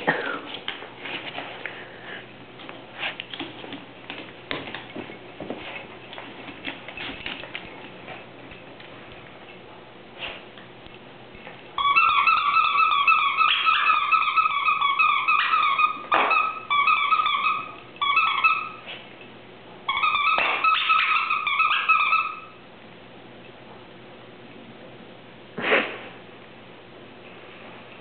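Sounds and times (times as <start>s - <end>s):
dog toy squeaking: 11.8s - 18.9s, 19.9s - 22.6s.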